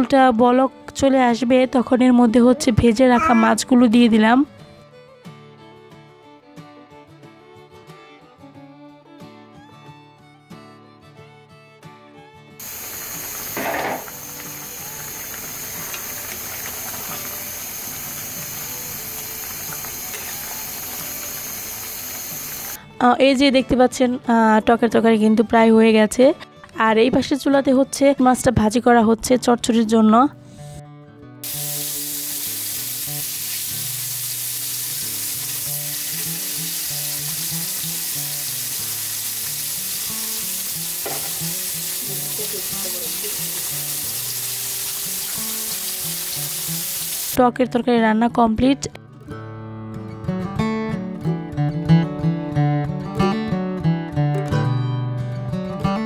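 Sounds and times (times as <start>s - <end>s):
curry bubbling in a pan: 12.6s - 22.8s
fish sizzling in oil: 12.6s - 22.8s, 31.4s - 47.4s
gas stove hiss: 12.6s - 22.8s, 31.4s - 47.4s.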